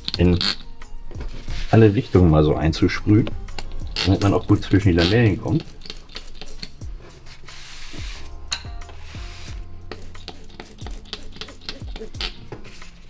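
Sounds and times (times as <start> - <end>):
background music with low beat: 0.0 - 13.0
spray bottle hissing spritzes: 3.4 - 8.3, 8.9 - 12.4.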